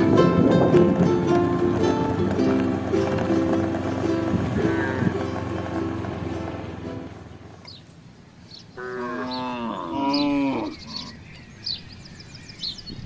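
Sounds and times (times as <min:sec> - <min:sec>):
cow mooing: 0:04.6 - 0:05.2, 0:08.8 - 0:11.1.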